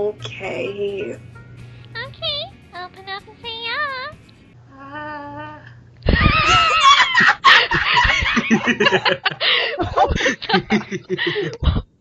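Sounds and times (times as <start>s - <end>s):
loud human laughter: 6.1s - 11.8s.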